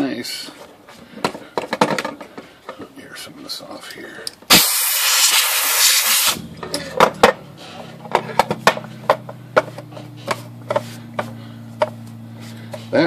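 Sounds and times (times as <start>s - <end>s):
compressed air hissing: 4.5s - 6.4s
low steady hum: 6.3s - 13.0s.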